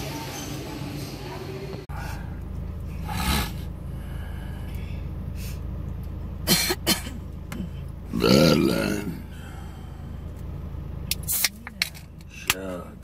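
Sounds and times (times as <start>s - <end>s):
car hum: 0.8s - 13.0s
man burping: 8.1s - 9.3s.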